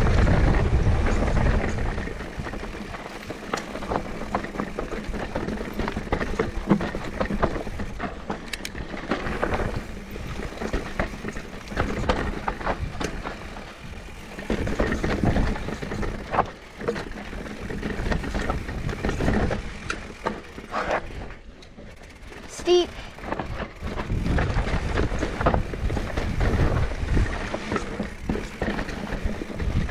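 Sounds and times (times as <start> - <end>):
wind rumble on microphone: 0.0 - 19.9, 23.0 - 29.9
bike rattling and knocking: 0.0 - 29.9
bike tyres crunching on dirt: 0.0 - 29.9.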